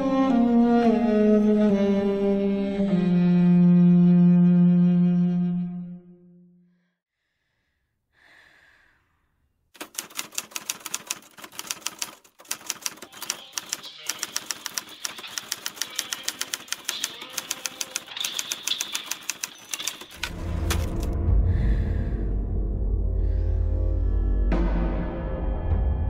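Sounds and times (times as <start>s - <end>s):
faint breathy sound: 7.1s - 9.4s
typewriter keys clacking: 9.8s - 21.2s.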